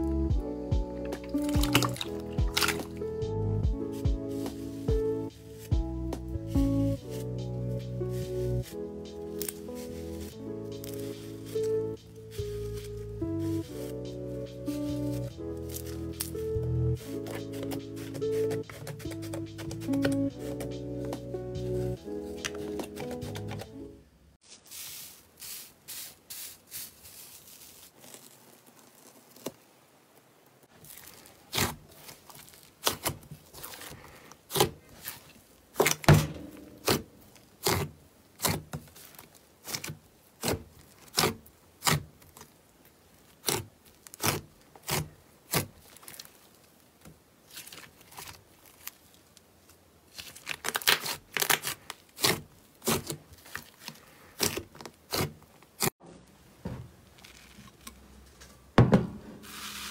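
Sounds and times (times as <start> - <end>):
slime squelching and popping: 1.0 - 3.0, 30.8 - 36.2.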